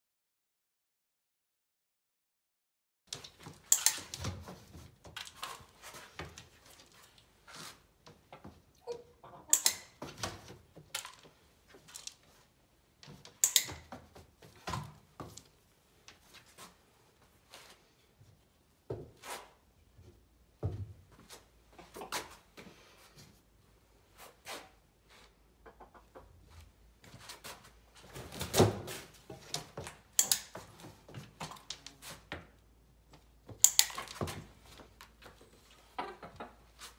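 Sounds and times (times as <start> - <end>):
training clicker snapping: 9.5 - 10.0, 13.4 - 13.9, 30.2 - 30.6, 33.6 - 34.2.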